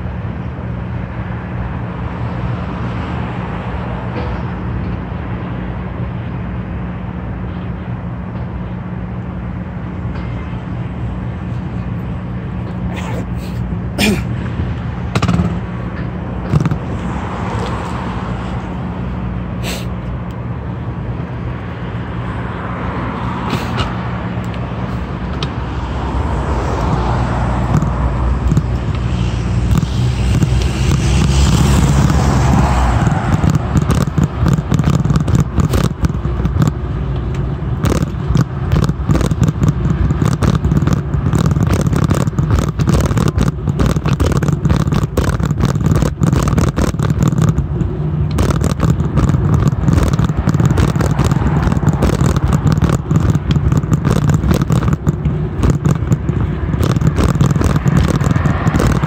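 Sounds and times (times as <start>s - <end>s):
road traffic: 0.0s - 59.0s
steady low hum: 0.0s - 59.0s
rapid clicks and rattles: 12.6s - 17.0s, 26.6s - 59.0s
wind rumble on microphone: 20.2s - 59.0s.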